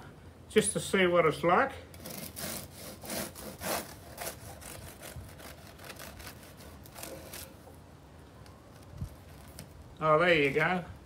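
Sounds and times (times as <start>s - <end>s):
bread knife sawing crust: 2.0s - 7.6s.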